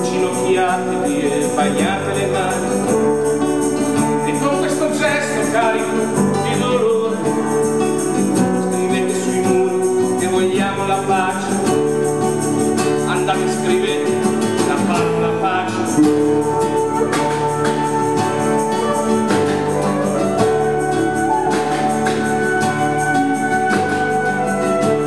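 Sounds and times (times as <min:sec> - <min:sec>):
strummed guitar: 0:00.0 - 0:25.0.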